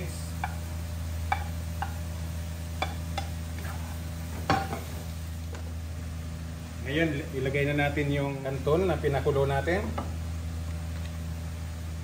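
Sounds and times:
steady low hum: 0.0s - 12.0s
spatula knocking and scraping pan: 1.3s - 2.1s, 2.8s - 3.4s, 4.4s - 5.0s.

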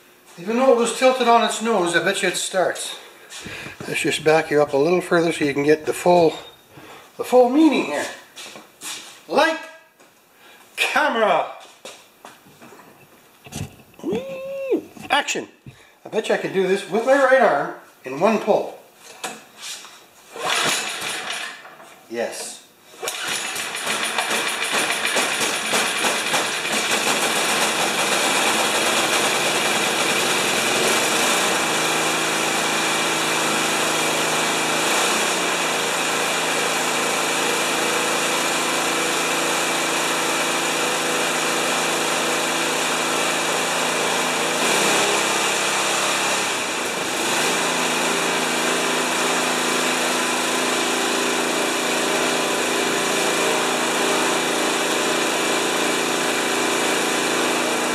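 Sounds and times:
snowblower engine running: 20.4s - 21.6s, 23.0s - 57.9s.

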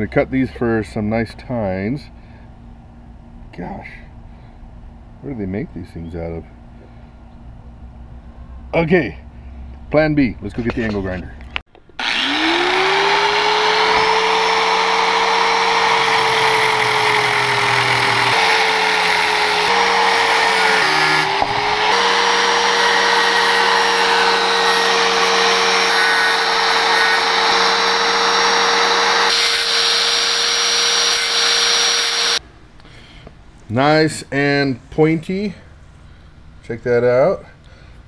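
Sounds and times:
angle grinder whine: 11.9s - 32.4s.

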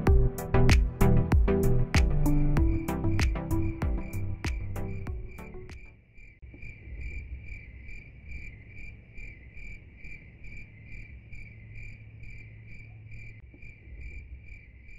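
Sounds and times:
low hum: 0.0s - 5.8s
cricket chirping: 4.8s - 14.9s.

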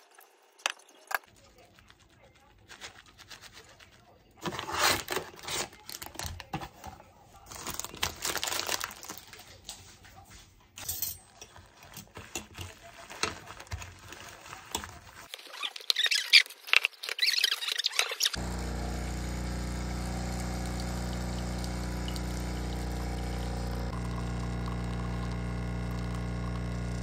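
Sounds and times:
plastic bags being handled: 1.3s - 9.7s, 11.5s - 18.3s
plastic packaging crinkling: 7.4s - 9.6s, 12.2s - 18.3s.

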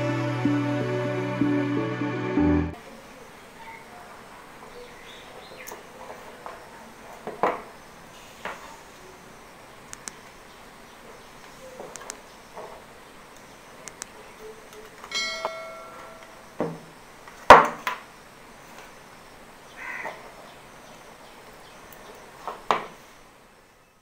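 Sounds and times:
cables and connectors clicking: 13.8s - 15.1s
short ringing clink: 15.1s - 16.2s.

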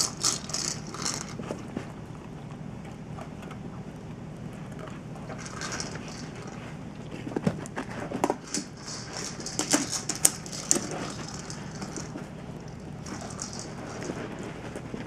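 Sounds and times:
treat ball rattling with kibble: 0.0s - 1.8s, 5.2s - 15.0s.

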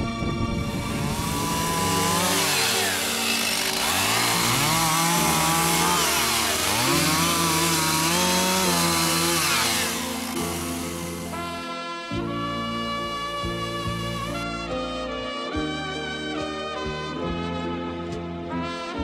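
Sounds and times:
chainsaw cutting wood: 0.6s - 11.9s, 13.0s - 14.4s.

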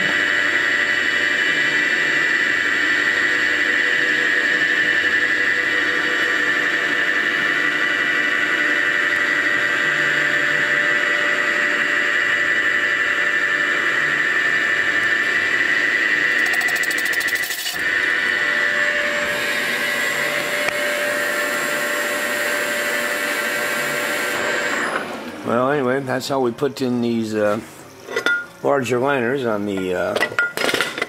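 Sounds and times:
mill boring metal squealing: 16.1s - 18.9s.

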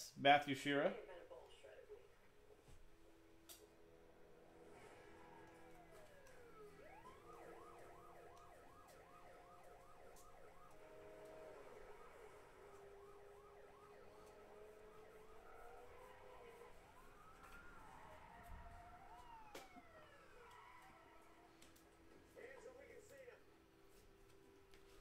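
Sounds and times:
emergency siren wailing and yelping: 3.8s - 22.4s.

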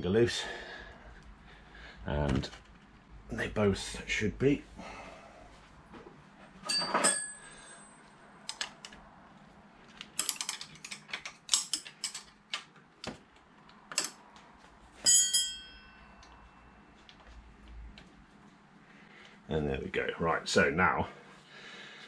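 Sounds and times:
metal tools clinking: 6.6s - 8.1s, 10.2s - 12.3s.

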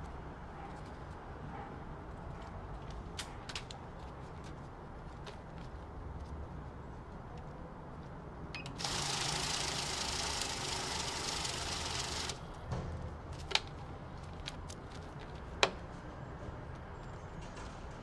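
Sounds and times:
banknote counter running: 8.8s - 12.4s.

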